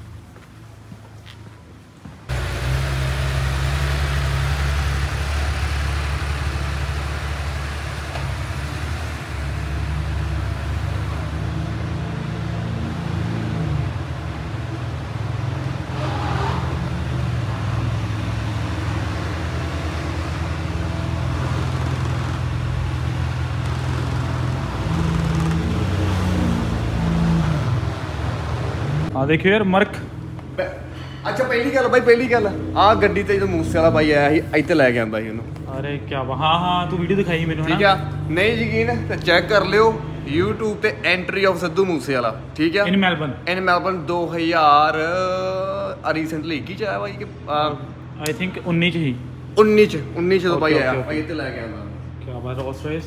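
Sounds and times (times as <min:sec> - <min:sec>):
car engine running: 0:02.3 - 0:11.5.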